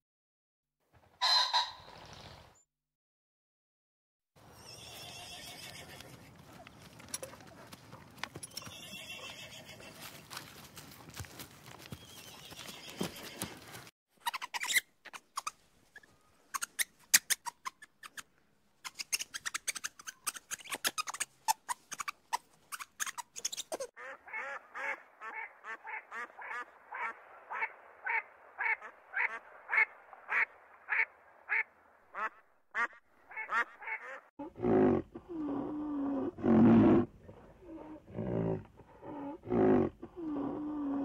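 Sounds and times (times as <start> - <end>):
duck calling: 1.2 - 1.8, 24.0 - 34.3
deep animal sound: 34.4 - 41.0.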